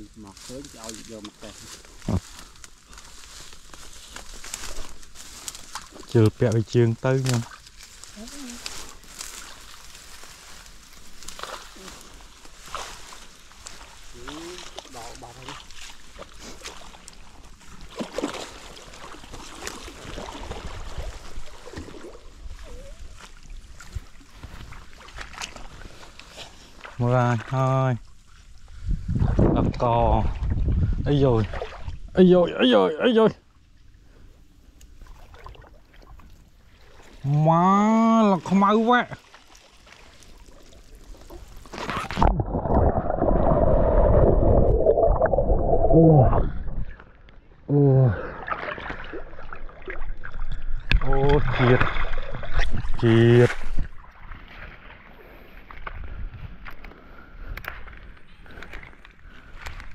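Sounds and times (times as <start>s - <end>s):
water sloshing and splashing: 0.2s - 32.3s, 33.4s - 37.4s, 38.3s - 47.6s, 48.2s - 59.9s
water splash: 11.2s - 22.6s, 39.0s - 46.8s, 48.2s - 55.0s.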